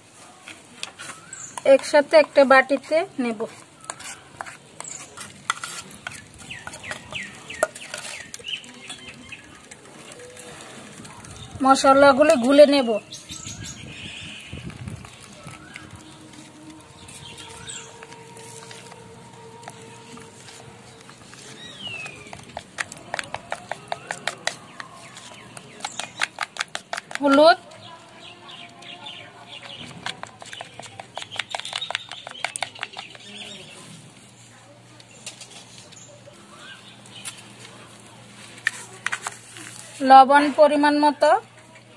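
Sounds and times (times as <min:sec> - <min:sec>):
metal spoon scraping plastic bowl: 0:00.8 - 0:12.8, 0:13.9 - 0:27.7, 0:28.5 - 0:33.7
bird chirping: 0:12.4 - 0:20.3, 0:27.8 - 0:33.8.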